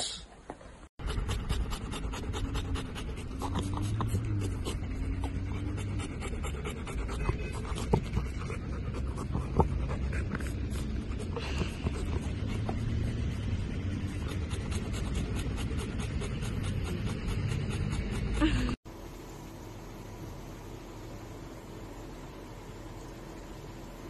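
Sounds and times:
dogs panting quickly: 1.0 - 18.8
steady low rumble: 1.1 - 18.8.

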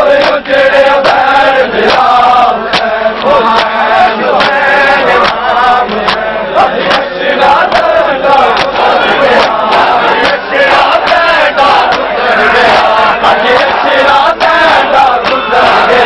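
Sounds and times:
men chanting a lament: 0.0 - 16.0
hands slapping bare chests: 2.7 - 4.6, 5.2 - 6.2, 7.7 - 12.1.

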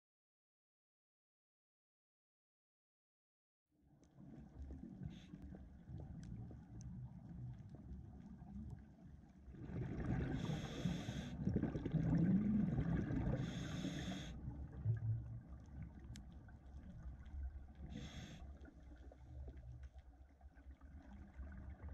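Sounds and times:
low underwater rumble: 4.1 - 21.9
hissing bursts of exhaled bubbles: 9.5 - 14.9, 17.8 - 18.7
diver breathing through regulator: 10.1 - 11.6, 13.2 - 14.5, 17.8 - 18.6.

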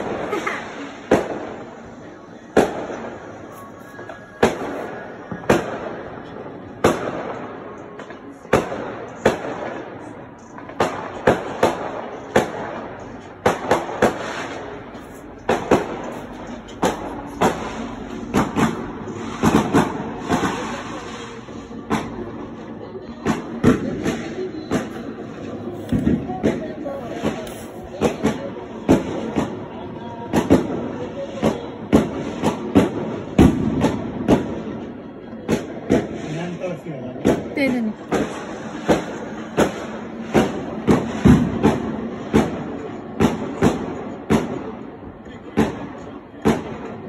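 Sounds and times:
continuous rumbling din: 0.0 - 36.2
fireworks bangs: 0.0 - 47.0.

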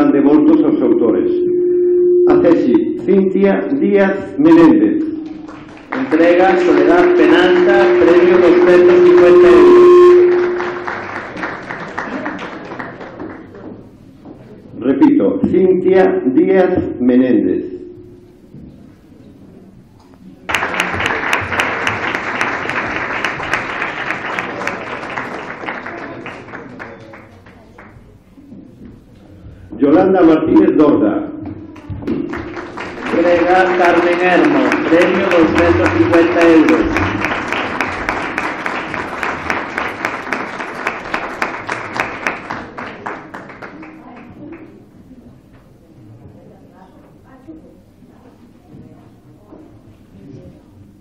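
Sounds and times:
audience applauding: 5.2 - 13.7, 20.5 - 28.0, 31.8 - 44.8.

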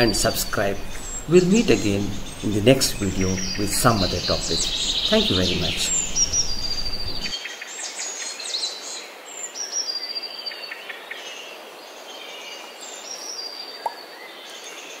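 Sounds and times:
birds whistling and chirping: 0.0 - 7.4
steady background hiss: 0.0 - 9.7.

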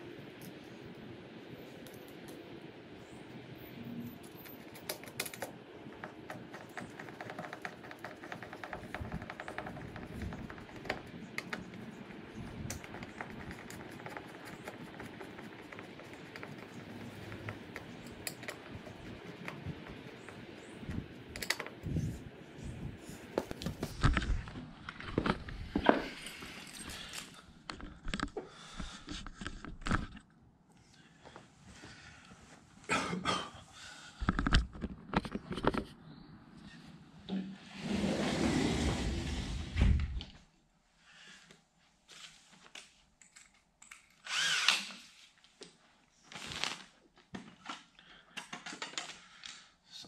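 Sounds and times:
screwdriver metal clicks and scrapes: 4.0 - 22.0
rustling scrape: 37.6 - 39.8.

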